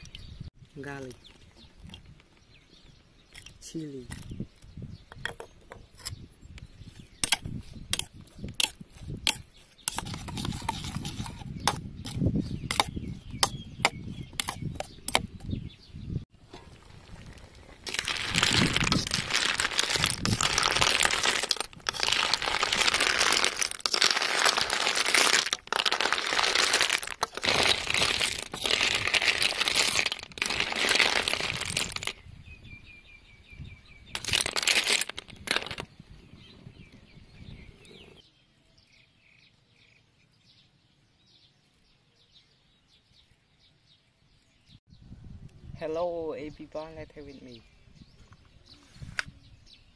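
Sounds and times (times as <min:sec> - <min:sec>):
faint birds chirping: 0:00.0 - 0:18.1, 0:35.8 - 0:49.9.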